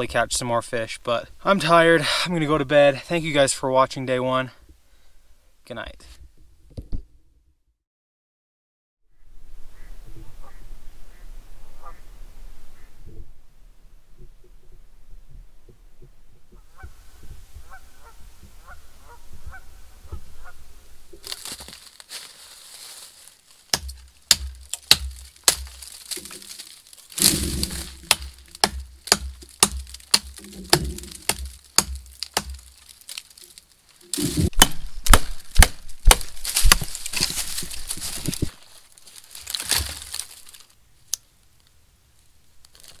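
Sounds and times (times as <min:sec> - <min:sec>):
sharp cracks and crunching thumps: 0:21.2 - 0:40.7.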